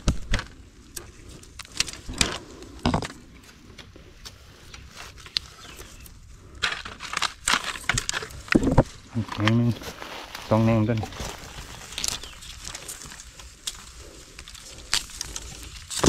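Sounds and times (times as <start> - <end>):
dry bamboo rustling and crackling: 0.0 - 16.0
bamboo snapping: 11.9 - 16.0.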